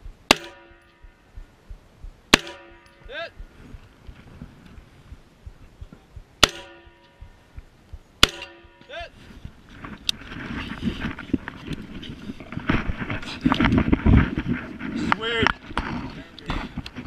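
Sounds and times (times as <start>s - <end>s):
gunshots: 0.3s - 0.9s, 2.3s - 3.3s, 6.4s - 7.0s, 8.2s - 8.8s
steel target ringing: 0.3s - 1.3s, 2.3s - 3.2s, 6.4s - 7.3s, 8.2s - 8.9s.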